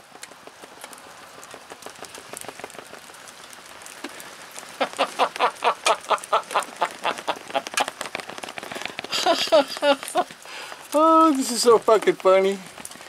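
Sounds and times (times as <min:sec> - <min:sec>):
light rain pattering: 0:00.0 - 0:13.0
man laughing: 0:04.8 - 0:07.9, 0:09.1 - 0:10.3.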